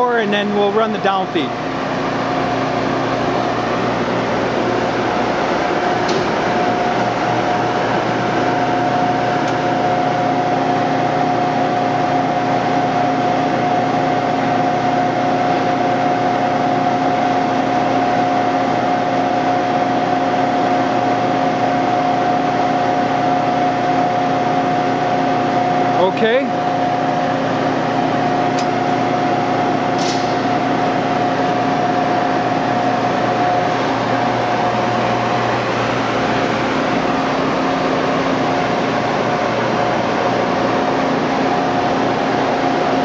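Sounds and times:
surface grinder humming and whining: 0:01.5 - 0:43.0.

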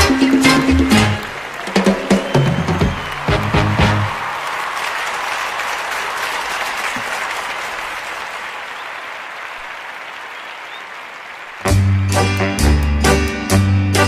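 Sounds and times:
burst of music: 0:00.0 - 0:04.3
audience applauding: 0:00.0 - 0:12.8.

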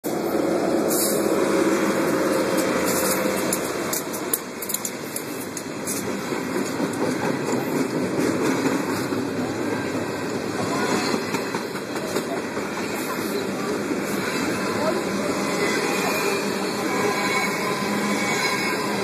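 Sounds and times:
diesel locomotive running: 0:00.0 - 0:19.0
freight cars rolling past: 0:00.0 - 0:19.0
wheels clicking and rattling: 0:02.0 - 0:09.5.

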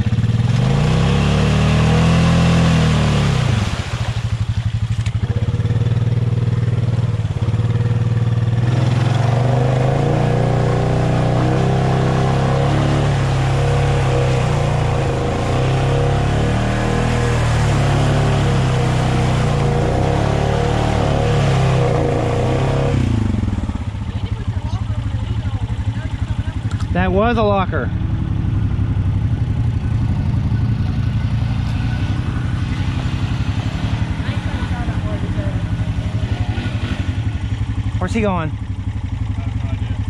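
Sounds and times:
atv engine revving: 0:00.0 - 0:40.0
splashing water and mud: 0:00.1 - 0:27.2.

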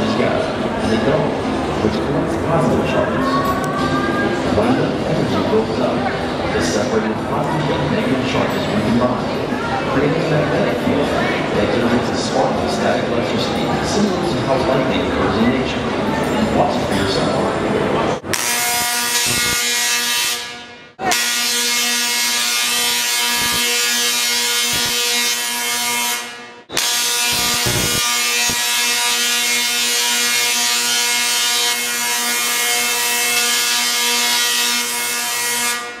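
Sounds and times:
tesla coil electric buzz: 0:18.2 - 0:36.0.

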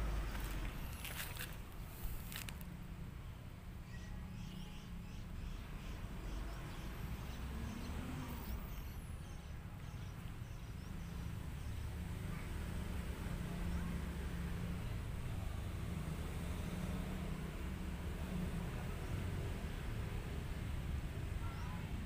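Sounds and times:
small bird chirping: 0:03.8 - 0:12.5.

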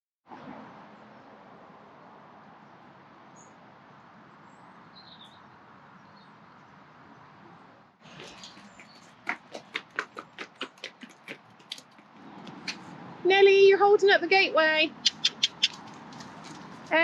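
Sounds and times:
faint high bird chirps: 0:04.6 - 0:06.3.

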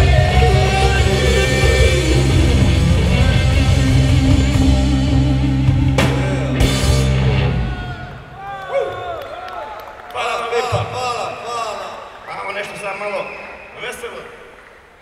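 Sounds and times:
blues-rock band playing live: 0:00.0 - 0:08.2.

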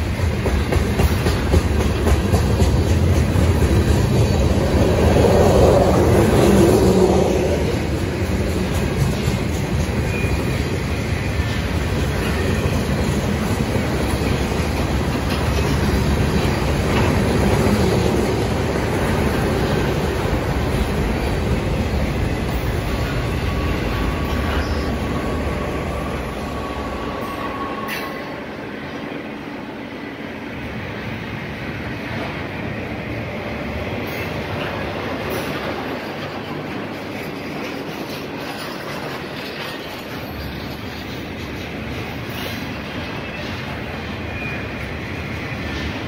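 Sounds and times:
train wheels rumbling on rails: 0:00.0 - 0:46.0
clicking over rail joints: 0:11.5 - 0:24.9, 0:34.1 - 0:43.7.

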